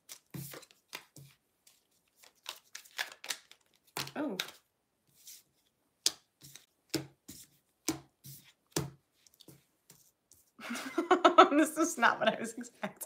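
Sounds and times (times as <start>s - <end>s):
cards slapping while shuffled: 0.0s - 4.6s, 6.0s - 10.0s.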